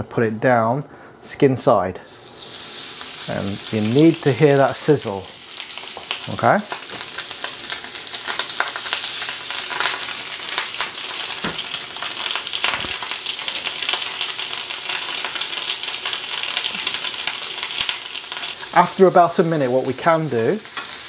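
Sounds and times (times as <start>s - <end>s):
meat sizzling in skillet: 2.1s - 21.0s
fat popping: 11.4s - 11.7s.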